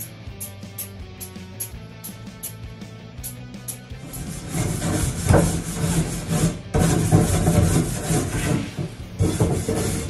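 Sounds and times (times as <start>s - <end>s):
scrubbing a grill: 4.0s - 10.0s.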